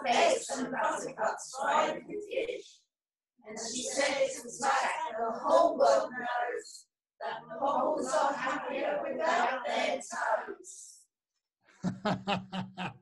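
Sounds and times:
group reciting in unison: 0.0s - 2.8s, 3.4s - 11.0s.

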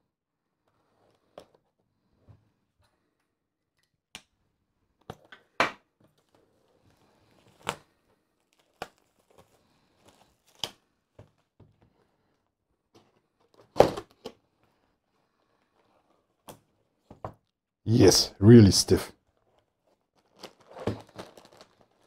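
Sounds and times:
plastic wrapping crinkling: 19.8s - 22.0s.

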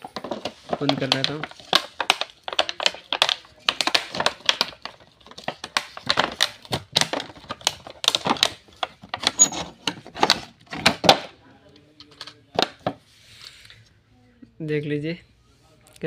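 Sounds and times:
plastic packaging crackling: 0.0s - 11.2s.

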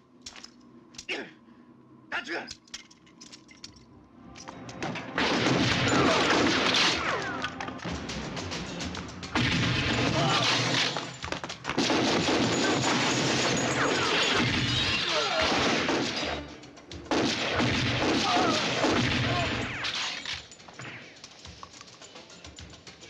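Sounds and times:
rapid gunfire: 5.2s - 7.2s, 9.3s - 22.4s.

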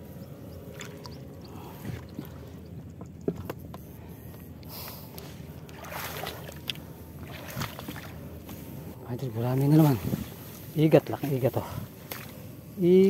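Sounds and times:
shallow water sloshing and splashing: 0.0s - 9.0s, 9.7s - 12.8s.

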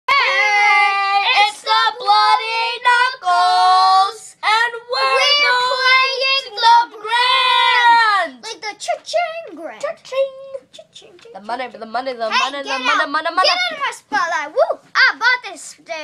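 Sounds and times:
child singing unaccompanied: 0.1s - 11.4s.

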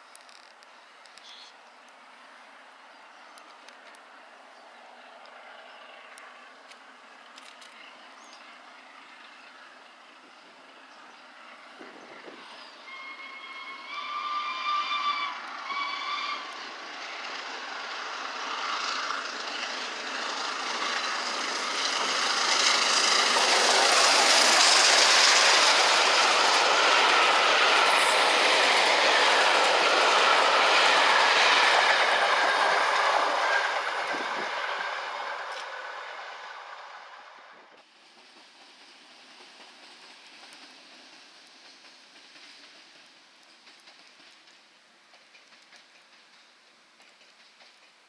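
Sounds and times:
steam train running past: 2.0s - 48.0s
steam locomotive whistle: 12.6s - 16.6s.

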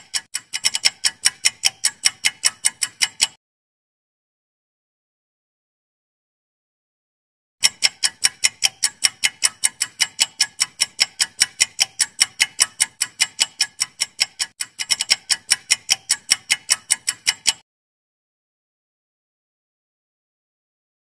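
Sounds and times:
clock ticking: 0.0s - 3.4s, 7.6s - 17.6s.

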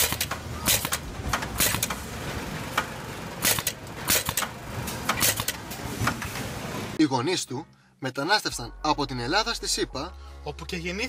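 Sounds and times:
sharp machine clacks: 2.8s - 5.6s.

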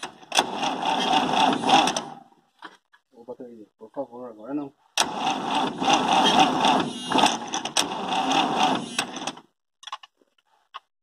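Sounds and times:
starter motor cranking diesel engine: 0.0s - 2.3s, 5.0s - 9.5s.

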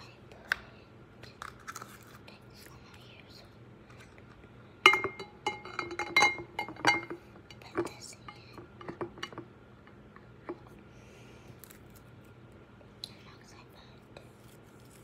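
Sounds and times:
glass vase clinking: 4.9s - 7.2s.

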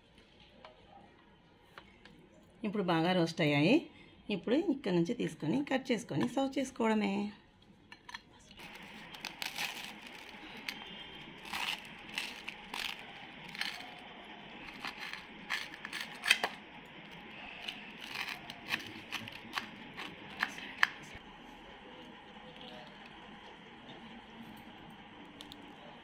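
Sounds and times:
knife sawing through toasted bread: 17.5s - 20.6s.

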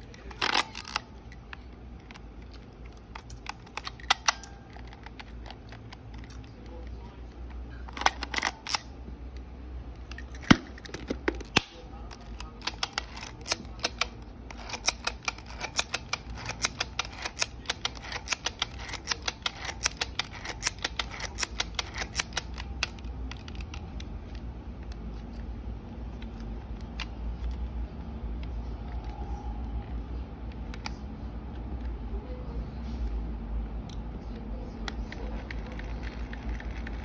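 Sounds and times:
film camera ratchet clicks: 12.6s - 23.8s.

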